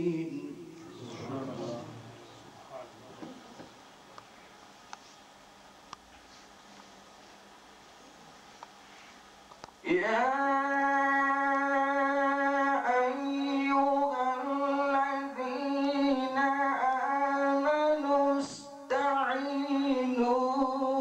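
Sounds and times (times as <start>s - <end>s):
man chanting melodically: 0.0s - 3.0s, 9.8s - 21.0s.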